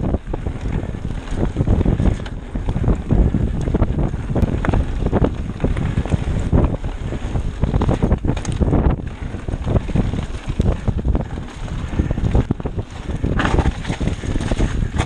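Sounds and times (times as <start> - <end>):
bike knocks and rattles: 0.0 - 15.0
tyres rolling on dirt trail: 0.0 - 15.0
wind buffeting microphone: 0.0 - 15.0.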